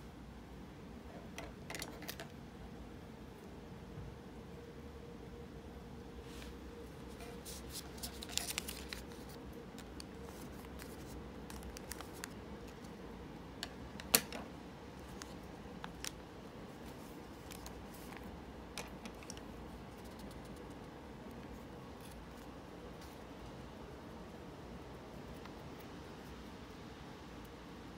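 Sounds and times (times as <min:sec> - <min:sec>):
paper rustling: 0:06.3 - 0:12.9, 0:15.0 - 0:18.3.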